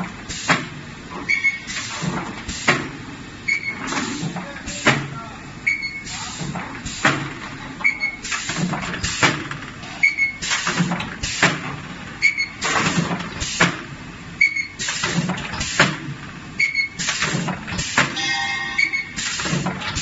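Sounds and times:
sharp pneumatic clacks: 0:00.2 - 0:05.1, 0:05.7 - 0:20.0
short high beep: 0:18.2 - 0:19.2.

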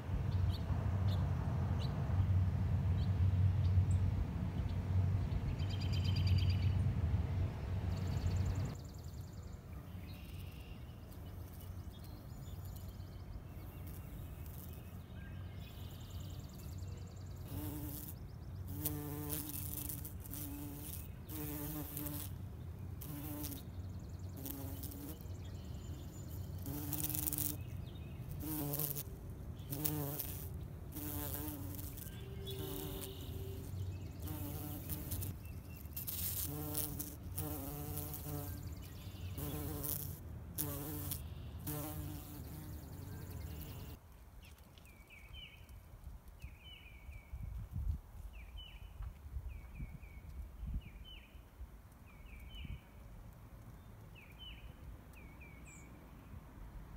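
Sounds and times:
bumblebee buzzing: 0:17.4 - 0:22.4, 0:23.0 - 0:23.6, 0:24.4 - 0:25.2, 0:26.3 - 0:44.0.

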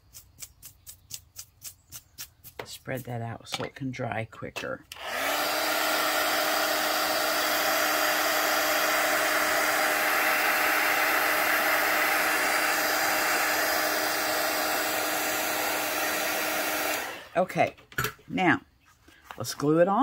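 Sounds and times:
heat gun blowing air: 0:04.9 - 0:17.4.

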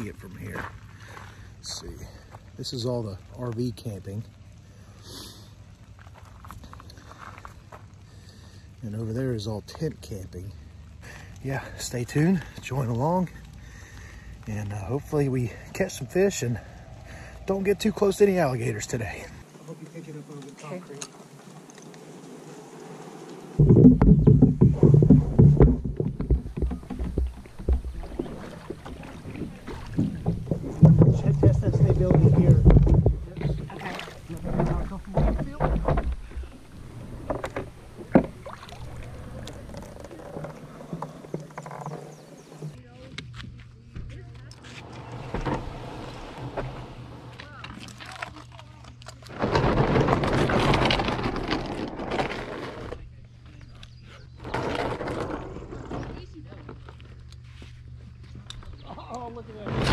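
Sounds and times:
kayak hull scraping over ground: 0:11.4 - 0:43.0, 0:44.1 - 0:59.9
loud bump of stepping aboard: 0:23.6 - 0:38.6.

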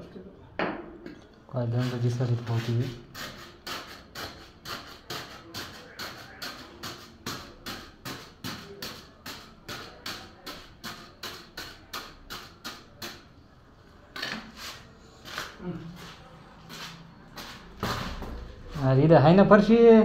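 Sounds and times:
floor tile being tapped: 0:03.6 - 0:13.3.

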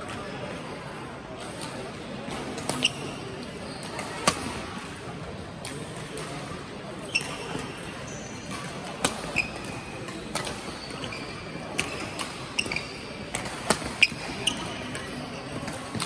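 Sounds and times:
shoes squeaking on court: 0:02.6 - 0:04.2, 0:07.0 - 0:16.0
rackets hitting shuttlecock: 0:07.2 - 0:16.0.

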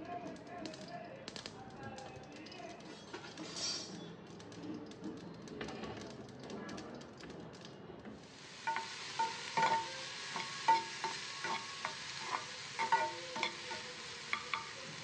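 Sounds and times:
food sizzling in a pan: 0:02.9 - 0:04.0, 0:08.2 - 0:15.0
metal spatula scraping a pan: 0:02.9 - 0:04.0, 0:08.5 - 0:15.0.

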